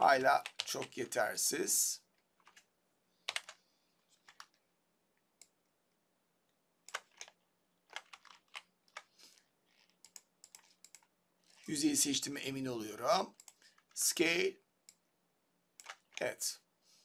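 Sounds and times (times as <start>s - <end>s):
mouse and keyboard clicks: 6.9s - 11.6s, 13.4s - 13.9s, 15.8s - 16.3s.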